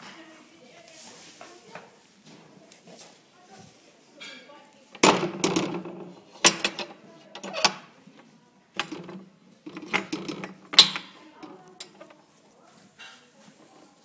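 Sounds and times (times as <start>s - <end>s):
metal bolt and wooden door clanking: 5.0s - 8.0s, 8.7s - 12.2s.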